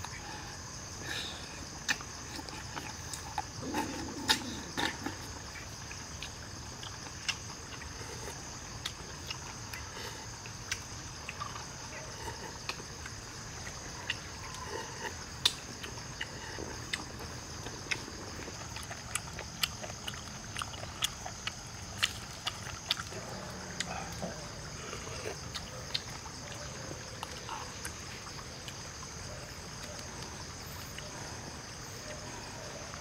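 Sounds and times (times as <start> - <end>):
clicks and slurps of eating snails: 0.0 - 31.9
insects chirring: 0.0 - 33.0.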